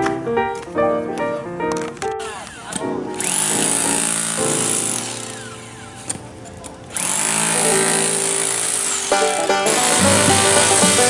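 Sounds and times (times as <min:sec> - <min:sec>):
demolition hammer chiselling concrete: 0:02.7 - 0:05.2, 0:07.0 - 0:09.1.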